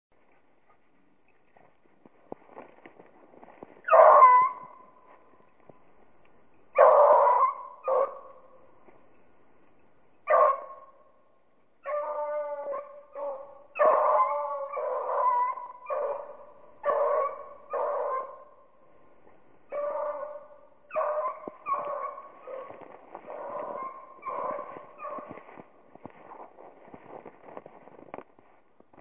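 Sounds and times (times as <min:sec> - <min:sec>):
hounds baying: 0:03.9 - 0:04.9, 0:06.7 - 0:08.6, 0:10.2 - 0:10.9, 0:11.8 - 0:18.6, 0:19.7 - 0:26.3.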